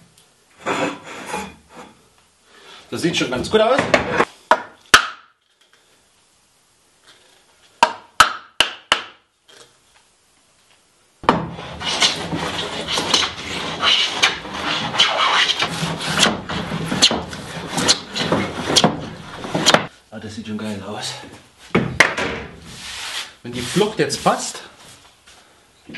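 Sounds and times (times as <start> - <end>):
hand plane shaving wood: 11.5 - 19.9.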